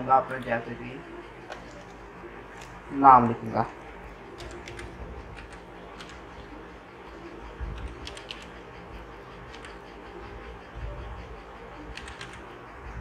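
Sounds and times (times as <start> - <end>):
computer keyboard keys clicking: 4.4 - 6.3, 7.7 - 8.6, 9.5 - 9.8, 11.9 - 12.4.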